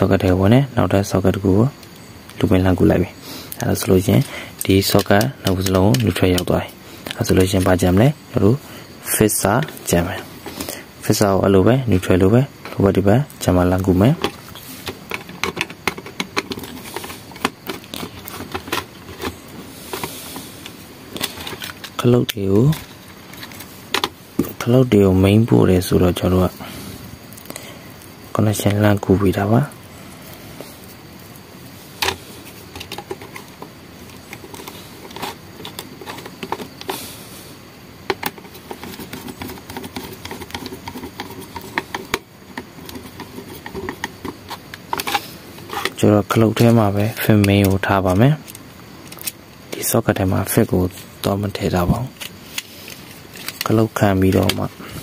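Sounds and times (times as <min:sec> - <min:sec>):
wires clicking and rustling: 0:03.5 - 0:08.6, 0:11.9 - 0:25.1, 0:27.3 - 0:37.2, 0:38.0 - 0:55.0
screwdriver clicking and scraping screws: 0:52.2 - 0:53.7.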